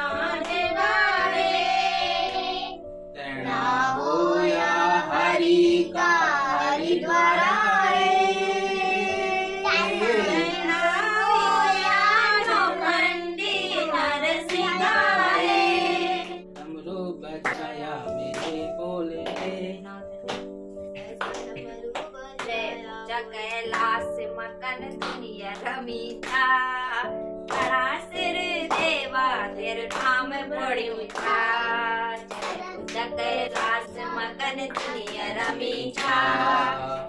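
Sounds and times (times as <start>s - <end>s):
women and children singing: 0.0s - 2.8s, 3.4s - 16.4s, 24.7s - 37.0s
hand claps keeping time: 17.4s - 19.6s, 20.2s - 22.7s, 23.4s - 24.0s, 24.8s - 28.0s, 28.6s - 29.1s, 29.8s - 36.7s.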